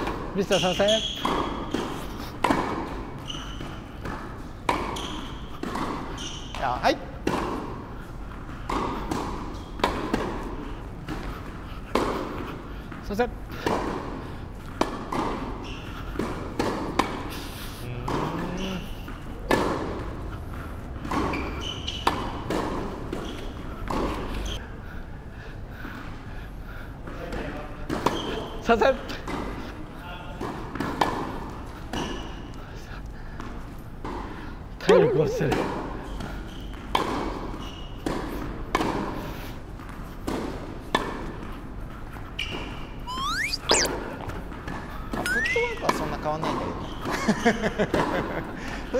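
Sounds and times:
tennis balls hit with rackets: 0:01.1 - 0:12.5, 0:13.6 - 0:17.3, 0:19.4 - 0:20.1, 0:21.0 - 0:24.3, 0:30.4 - 0:32.2, 0:35.0 - 0:39.2, 0:40.2 - 0:41.5
tennis ball hit with rackets: 0:01.2 - 0:02.9.

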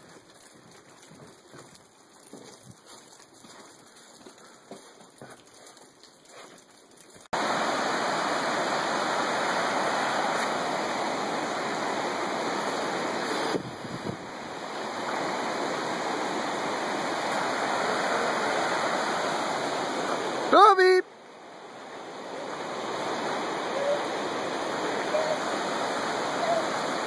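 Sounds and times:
river rapids rushing: 0:07.4 - 0:13.6, 0:14.2 - 0:27.0.

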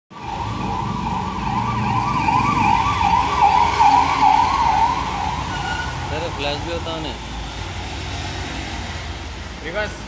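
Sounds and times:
electronic siren warbling: 0:00.2 - 0:06.1.

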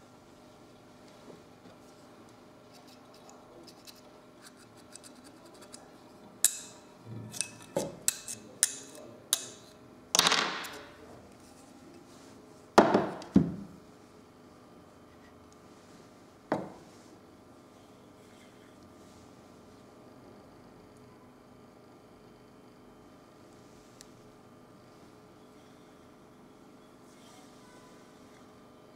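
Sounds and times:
knock: 0:16.5 - 0:16.8.

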